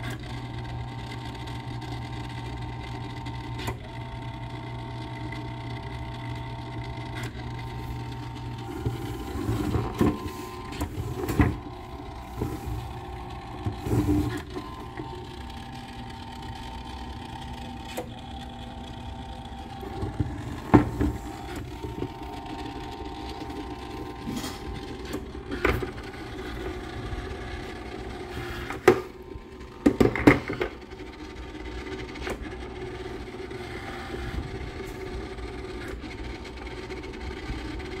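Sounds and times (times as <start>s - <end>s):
motor base humming: 0.0s - 38.0s.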